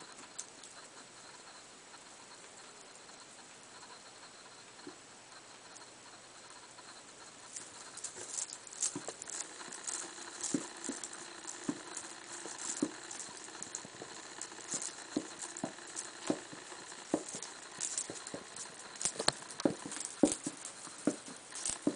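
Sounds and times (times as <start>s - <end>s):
hedgehogs scuffling in bedding: 7.2s - 21.9s.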